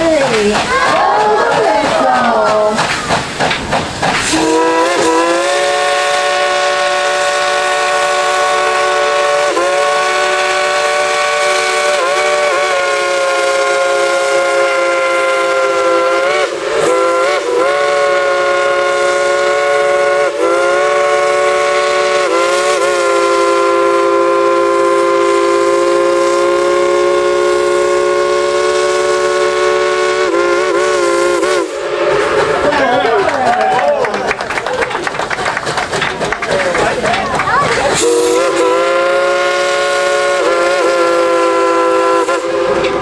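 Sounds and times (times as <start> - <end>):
steam hiss: 0.0 - 32.6, 37.9 - 43.0
steam locomotive whistle: 4.3 - 32.7, 37.9 - 43.0.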